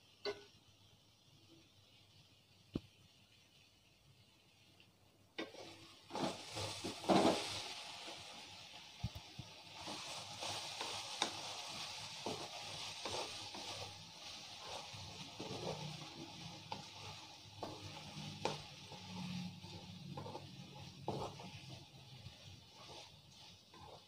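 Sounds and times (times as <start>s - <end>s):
okra sizzling in oil: 0.0s - 24.0s
wooden spatula scraping pan: 5.4s - 8.5s, 9.6s - 24.0s.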